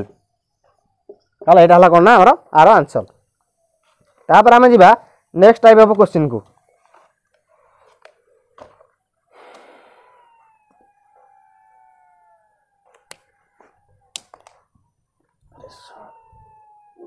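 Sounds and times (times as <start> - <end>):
dog howling faintly: 9.8 - 17.0.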